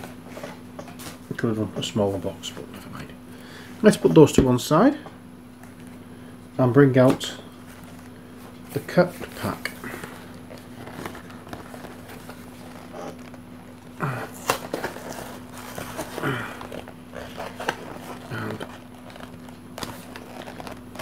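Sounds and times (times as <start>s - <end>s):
steady low hum: 0.0s - 21.0s
low vocal grunts: 14.0s - 14.6s, 16.2s - 16.7s.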